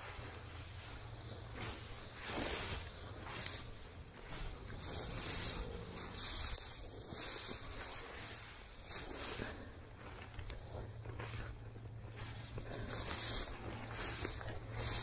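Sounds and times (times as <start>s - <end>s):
walking through dense brush: 0.0s - 15.0s
dry leaves crunching underfoot: 0.1s - 10.3s.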